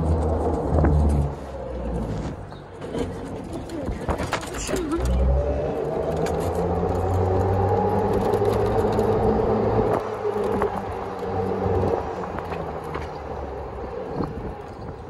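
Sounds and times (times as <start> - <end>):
low rumble: 0.0 - 3.4
golf cart motor whine: 5.0 - 15.0.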